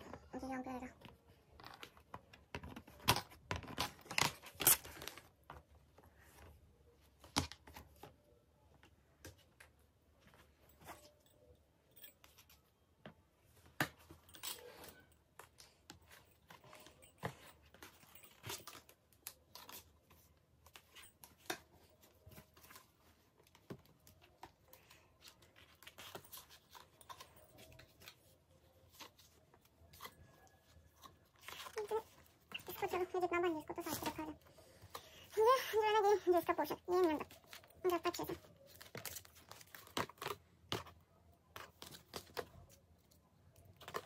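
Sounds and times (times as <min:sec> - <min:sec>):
plastic parts clicking and knocking: 0:01.0 - 0:05.7.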